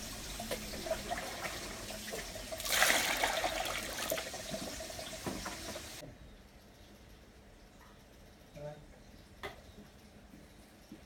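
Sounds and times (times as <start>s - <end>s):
water splashing in steel bowl: 0.5s - 5.7s.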